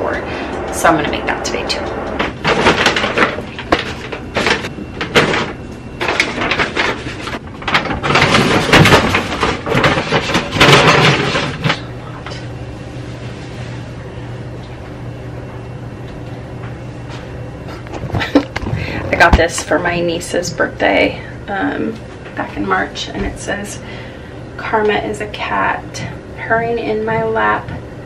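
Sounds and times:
steady low hum: 0.0s - 28.0s
paper rustling: 2.5s - 11.8s.

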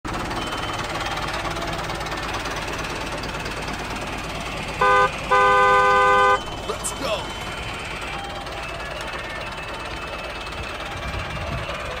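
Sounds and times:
toy engine rattling hum: 0.1s - 12.0s
toy horn toots: 4.8s - 6.6s.

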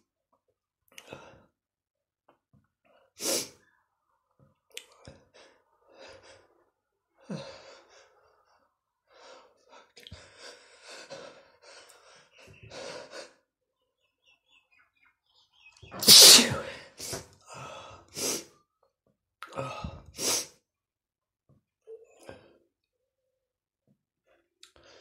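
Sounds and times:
man sneezing: 16.0s - 17.2s.

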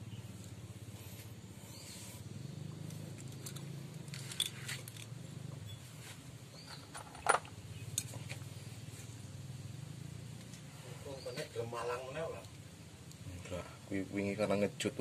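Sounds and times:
low steady hum: 0.0s - 15.0s
light metallic clinks: 2.8s - 5.8s.

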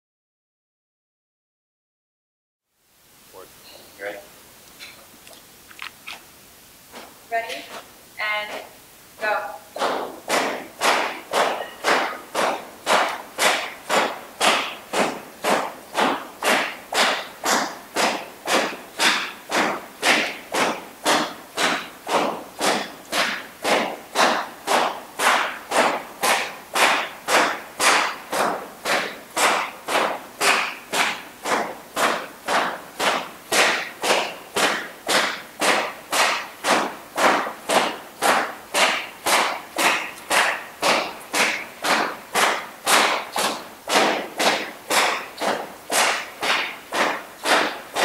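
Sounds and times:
whip cracking: 9.7s - 48.0s.

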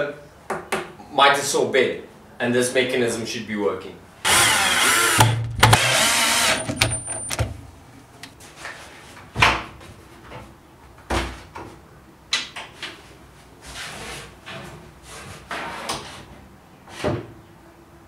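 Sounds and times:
cordless drill driving screws: 4.2s - 7.3s.

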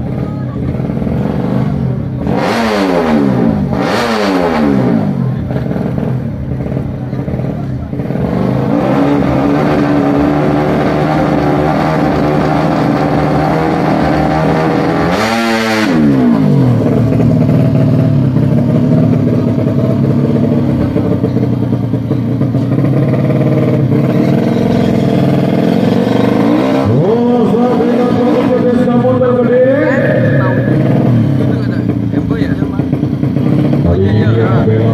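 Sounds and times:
motorcycle engine revving: 0.0s - 34.9s.

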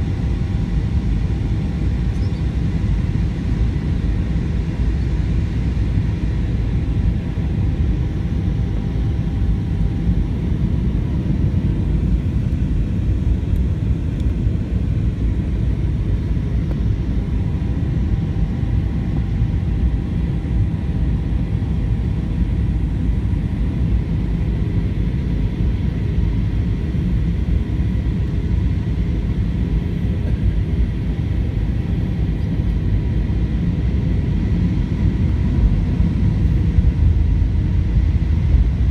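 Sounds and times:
airplane cabin engine rumble: 0.0s - 38.9s
faint steady whining tones: 0.0s - 38.9s.

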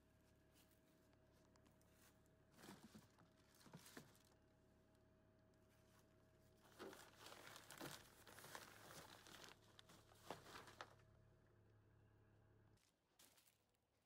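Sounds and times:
plastic bag rustling: 2.6s - 4.4s, 6.6s - 11.0s.

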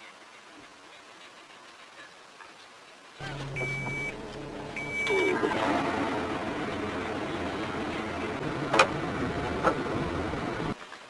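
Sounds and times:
dashboard electronic beeps: 3.2s - 5.5s
car engine starting and running: 3.2s - 10.8s.

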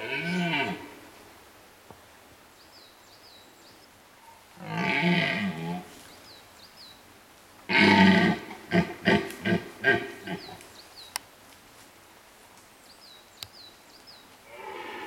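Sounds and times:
deer stag roaring: 0.0s - 0.9s, 4.6s - 5.8s, 7.7s - 10.4s, 14.5s - 15.0s.

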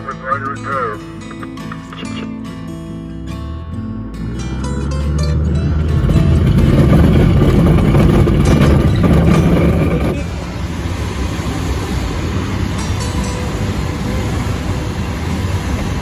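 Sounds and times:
glider takeoff rumble: 3.7s - 16.0s.

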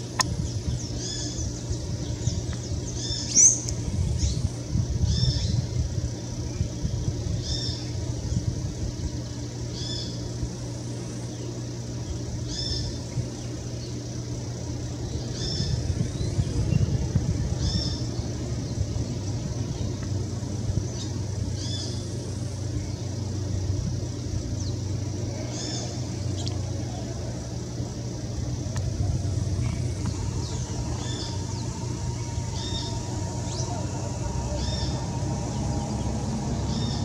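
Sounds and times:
low mechanical hum: 0.0s - 37.0s
bird high call: 29.6s - 37.0s.

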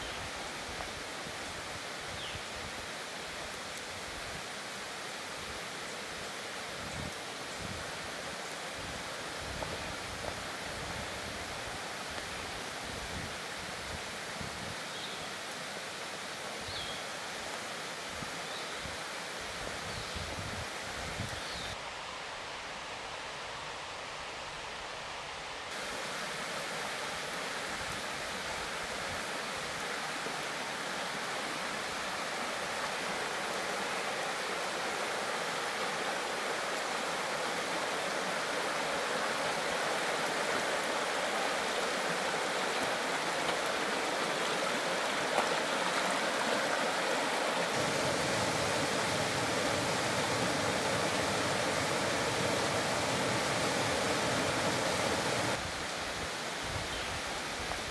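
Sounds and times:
creek rushing over stones: 25.7s - 57.9s.

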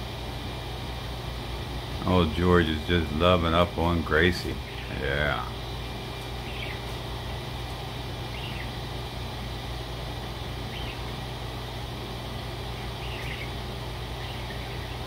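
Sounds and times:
steady low hum: 0.0s - 15.0s
budgerigar chirps: 8.3s - 8.8s, 10.7s - 11.1s, 12.9s - 13.6s.

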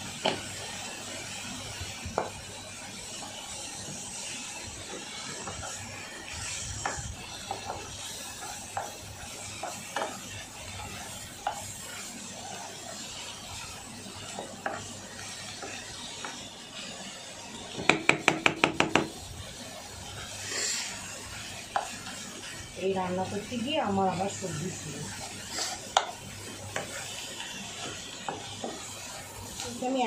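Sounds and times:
faint sizzle: 0.0s - 30.0s
spatula scraping a pan: 4.8s - 19.3s, 19.9s - 30.0s
utensil tapping on pan: 9.6s - 10.2s, 17.8s - 19.2s, 25.9s - 26.9s, 27.8s - 28.8s.

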